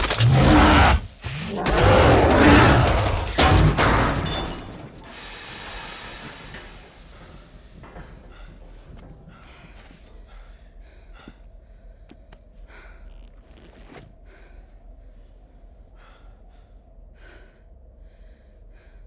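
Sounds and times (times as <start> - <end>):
person breathing hard: 5.1 - 19.0.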